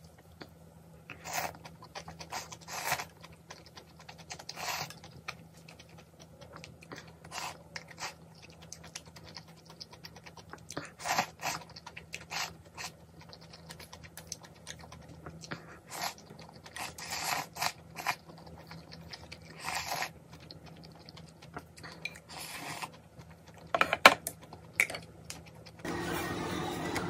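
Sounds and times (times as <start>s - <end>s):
chewing: 1.1s - 25.8s
slurping noodles: 2.2s - 3.1s.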